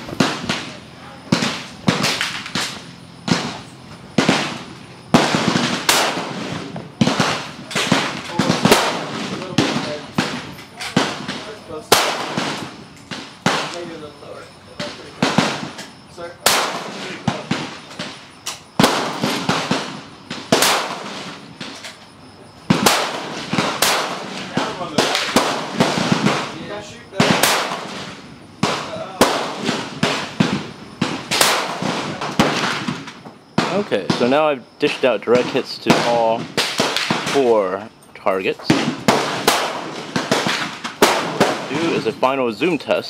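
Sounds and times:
rifle shots echoing: 0.0s - 14.2s, 14.8s - 21.9s, 22.6s - 37.8s, 38.7s - 42.2s.

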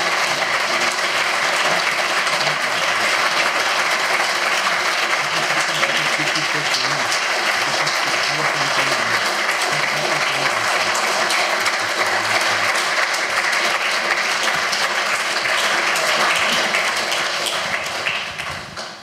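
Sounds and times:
audience applauding: 0.0s - 19.0s.

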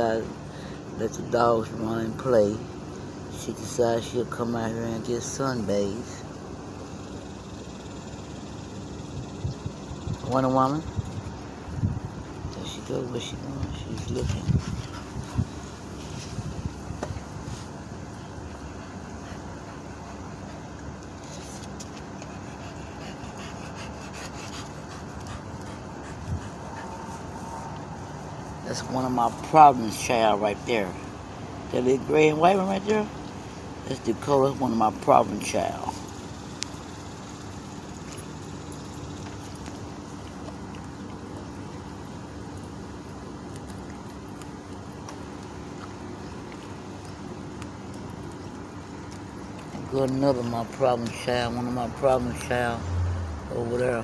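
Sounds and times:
constant hum: 0.0s - 54.0s
dog panting: 13.3s - 30.1s.

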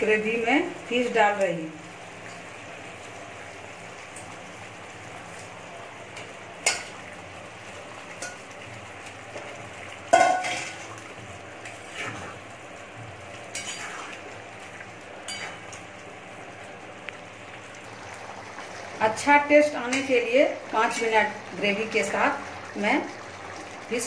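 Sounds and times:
low sizzle: 0.0s - 24.0s
metal spatula scraping a pan: 13.5s - 14.1s.

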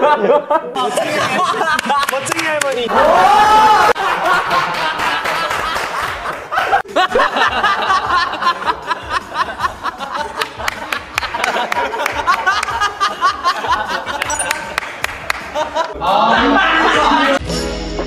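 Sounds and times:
young men laughing: 0.0s - 17.4s
background music: 4.0s - 18.0s.

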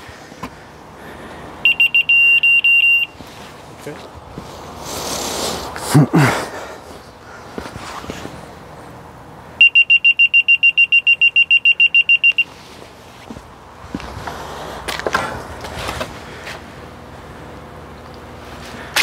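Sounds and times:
rapid high beeps: 1.6s - 3.2s, 9.6s - 12.5s.

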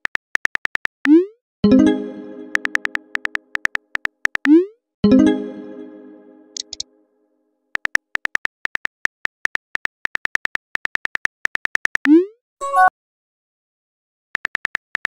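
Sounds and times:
synthetic keyboard typing clicks: 0.0s - 1.3s, 2.1s - 4.7s, 6.6s - 6.9s, 7.8s - 12.3s, 14.4s - 15.0s
chime: 1.7s - 3.2s, 5.1s - 6.7s.

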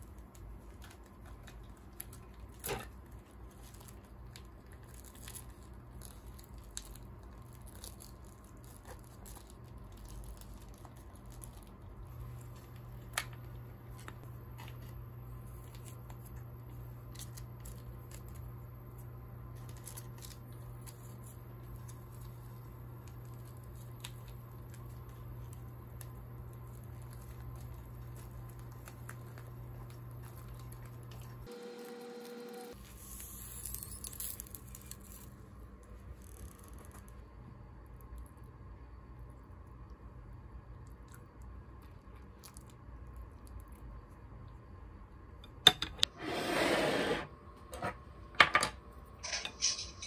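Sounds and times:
plastic pouch squishing and crinkling: 0.0s - 18.4s, 19.5s - 31.5s
steady low hum: 0.0s - 50.0s.

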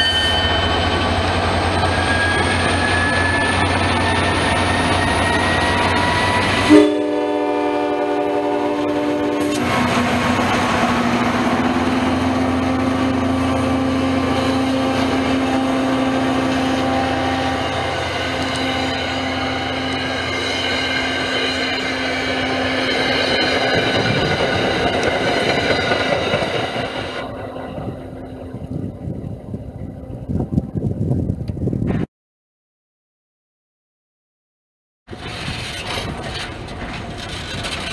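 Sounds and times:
rising whine: 0.0s - 7.2s
locomotive engine drone: 0.0s - 31.1s, 35.1s - 37.9s
train horn: 2.0s - 10.8s, 11.4s - 24.3s
train wheels clattering: 19.8s - 28.2s.

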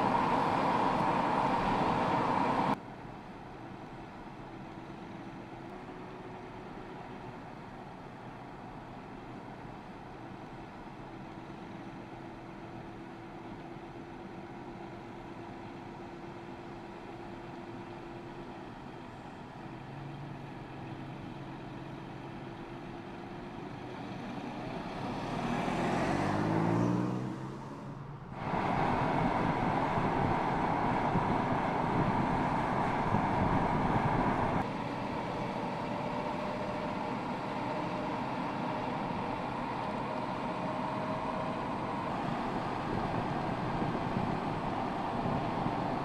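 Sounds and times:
car engine accelerating: 0.0s - 2.8s, 23.7s - 46.0s
tyre and wind noise: 28.4s - 34.7s, 42.2s - 46.0s.

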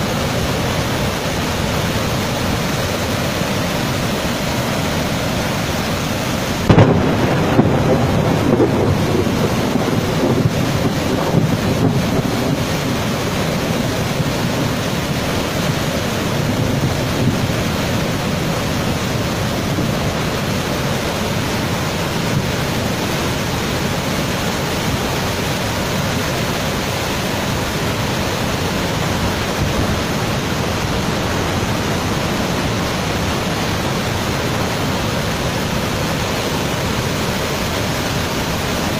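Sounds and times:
waterfall rushing: 0.0s - 38.9s
low rumble: 6.7s - 11.8s.

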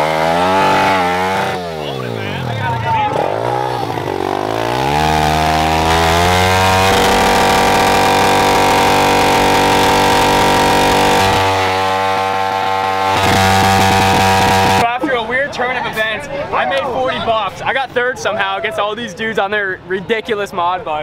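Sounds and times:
motorbike engine revving: 0.0s - 14.8s
tire spinning: 0.0s - 14.8s.

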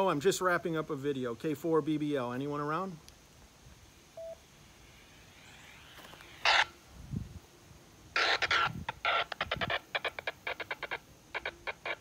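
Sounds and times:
repeater courtesy tone: 4.2s - 4.4s
radio static burst: 4.2s - 6.8s, 8.1s - 12.0s.

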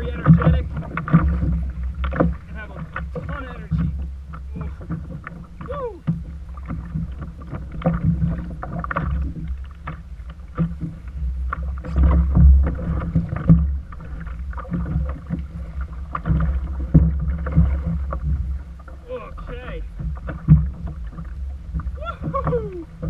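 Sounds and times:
water sloshing against kayak hull: 0.0s - 23.0s
wind rumble on microphone: 0.0s - 23.0s.

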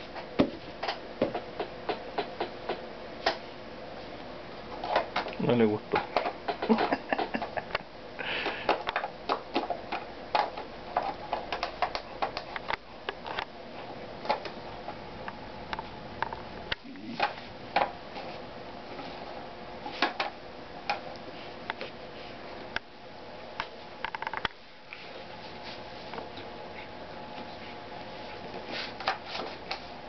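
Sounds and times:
puppy teeth clacking on plastic: 8.4s - 12.8s.

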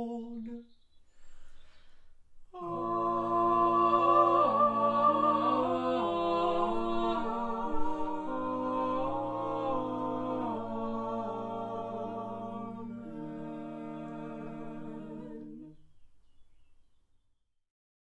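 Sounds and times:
vocal quartet singing unaccompanied: 0.0s - 0.8s, 2.5s - 15.9s.

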